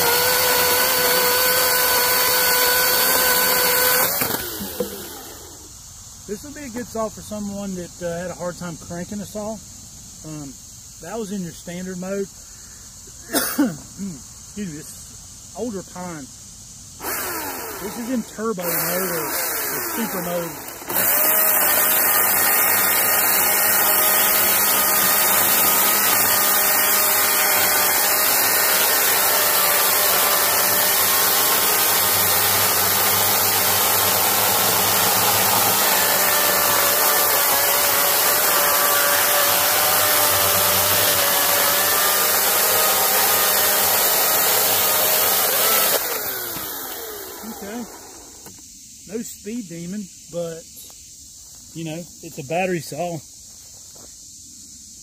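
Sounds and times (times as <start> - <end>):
electric chainsaw cutting log: 0.0 - 5.8, 17.0 - 48.6.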